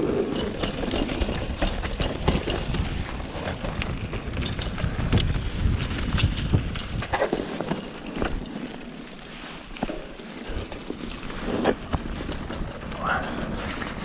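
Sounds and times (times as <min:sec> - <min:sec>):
wind buffeting microphone: 0:00.0 - 0:07.6
bike tyres and frame rattling: 0:00.0 - 0:14.0.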